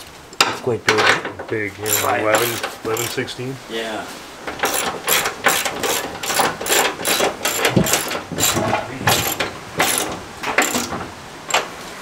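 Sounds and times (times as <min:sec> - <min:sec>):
ratchet wrench clicking: 0:01.9 - 0:03.2, 0:04.6 - 0:10.9.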